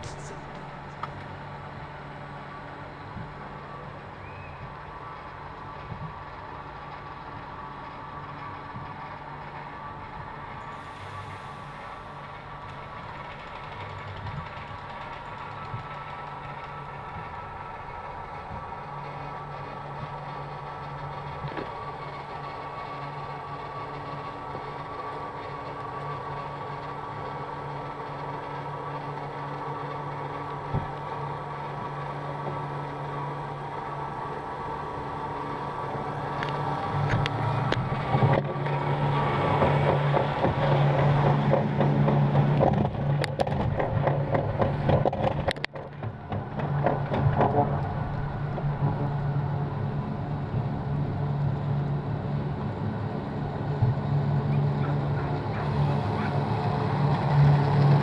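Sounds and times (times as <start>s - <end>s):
mechanical hum of lift drive: 0.0s - 58.0s
sled rattling and clicking: 12.1s - 58.0s.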